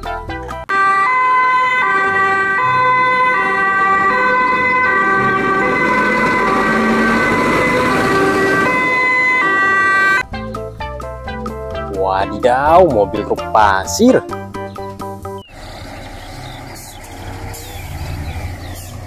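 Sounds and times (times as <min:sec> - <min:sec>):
two-tone fire engine siren: 0:00.7 - 0:10.3.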